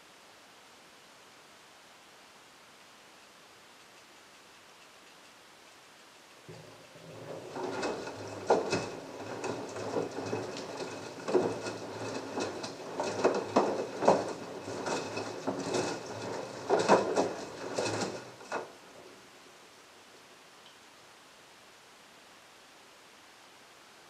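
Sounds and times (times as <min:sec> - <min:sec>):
laundry thudding and sloshing: 0:06.5 - 0:18.8
washing machine motor hum: 0:06.5 - 0:19.1.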